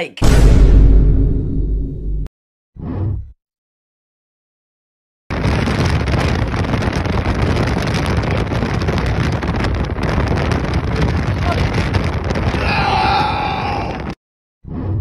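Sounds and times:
wind rushing on microphone: 0:05.3 - 0:14.2.

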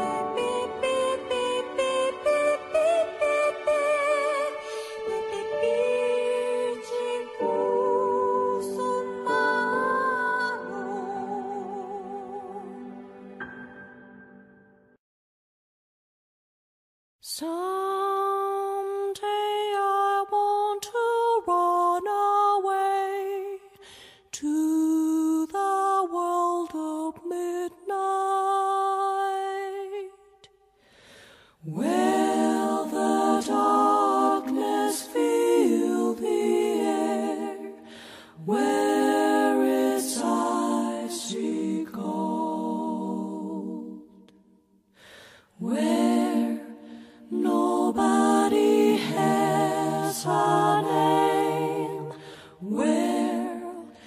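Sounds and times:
voices singing in harmony: 0:00.0 - 0:13.4, 0:31.6 - 0:44.6, 0:45.5 - 0:54.0.

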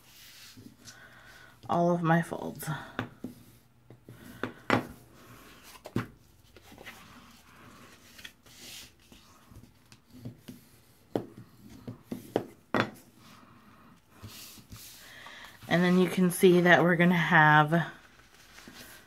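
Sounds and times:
card being folded and creased: 0:05.5 - 0:10.2.

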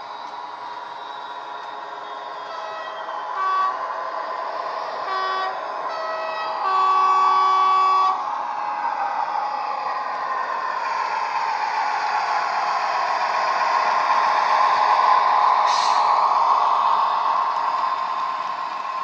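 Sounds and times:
diesel engine running: 0:00.0 - 0:19.0
two-tone horn: 0:02.5 - 0:03.9, 0:05.0 - 0:08.2.

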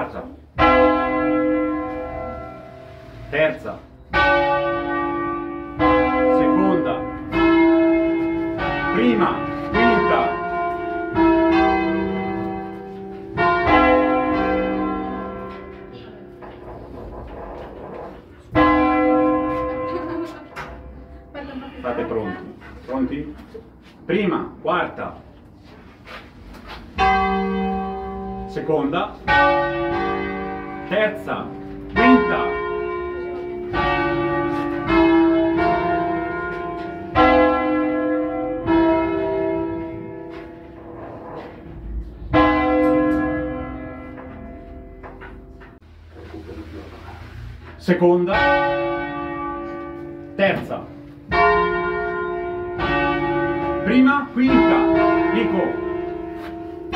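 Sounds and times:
church bells ringing: 0:00.0 - 0:25.4, 0:26.7 - 0:45.8, 0:47.2 - 0:56.9.

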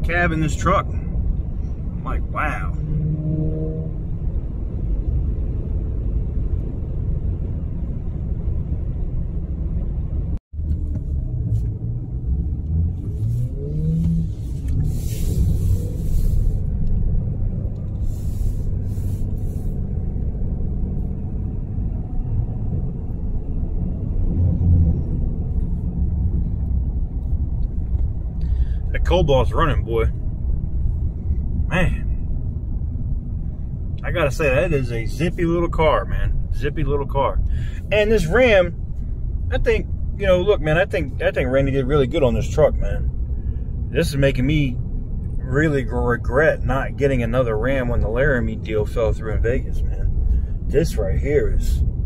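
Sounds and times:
engine and road rumble: 0:00.0 - 0:52.0
engine note rising: 0:01.2 - 0:35.3.

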